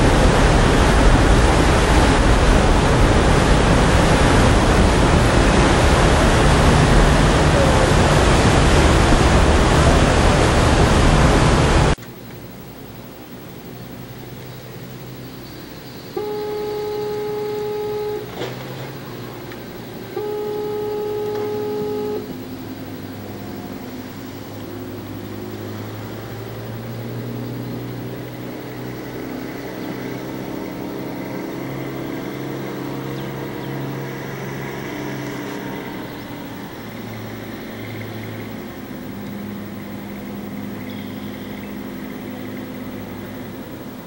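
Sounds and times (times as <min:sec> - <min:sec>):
steady low rumble: 0:00.0 - 0:15.2
ship's whistle blasts: 0:16.0 - 0:22.7.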